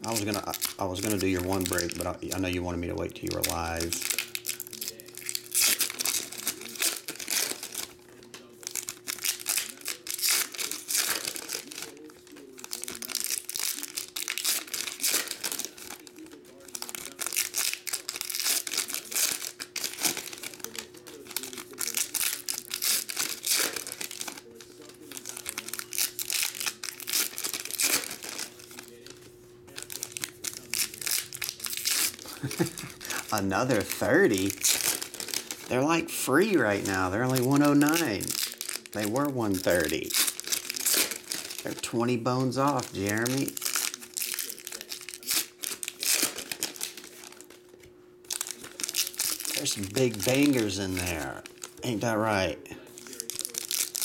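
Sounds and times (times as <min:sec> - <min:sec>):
foil wrappers crinkling and tearing: 0:00.0 - 0:54.0.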